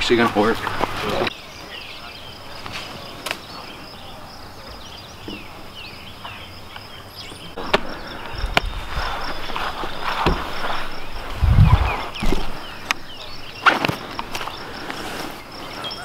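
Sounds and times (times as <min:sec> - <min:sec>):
birds chirping: 0:00.0 - 0:16.0
pulsing insect drone: 0:03.5 - 0:16.0
rustling noise: 0:07.6 - 0:13.0, 0:13.6 - 0:16.0.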